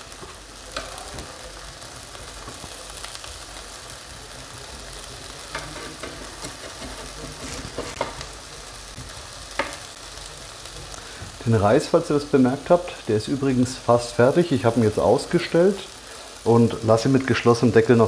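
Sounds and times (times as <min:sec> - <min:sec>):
onions sizzling in butter: 0:00.0 - 0:18.0
spatula stirring: 0:05.4 - 0:08.2.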